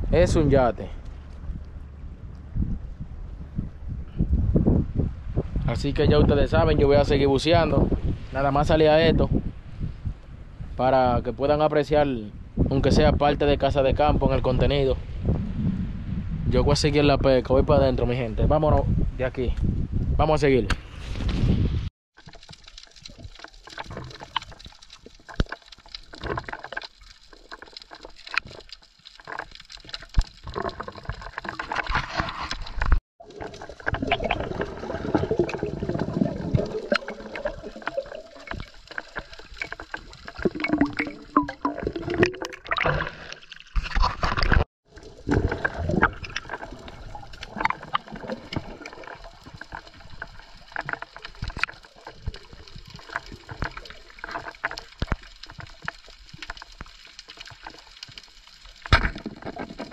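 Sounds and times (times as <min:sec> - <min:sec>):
underwater gurgling and sloshing: 0:22.2 - 0:59.9.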